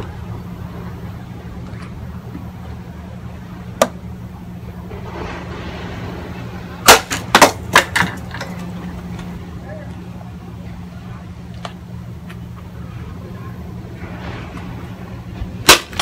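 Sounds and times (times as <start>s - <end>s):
steady low hum: 0.0s - 16.0s
sharp crack: 4.9s - 9.3s, 13.9s - 16.0s.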